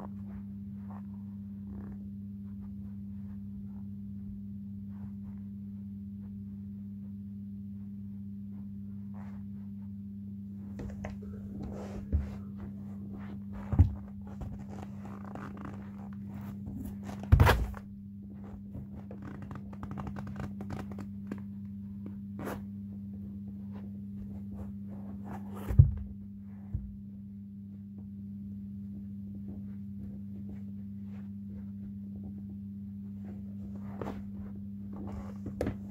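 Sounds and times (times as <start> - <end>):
low hum: 0.0 - 35.9
shoes rustling and scraping: 10.7 - 17.8, 33.2 - 35.9.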